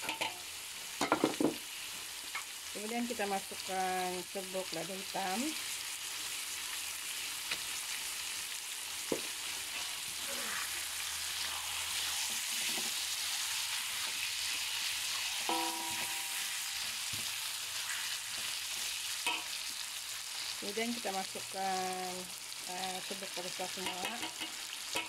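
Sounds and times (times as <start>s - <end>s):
food sizzling in a wok: 0.0s - 25.0s
spatula scraping wok: 9.2s - 20.6s, 23.5s - 25.0s
short ringing tone: 15.4s - 16.7s.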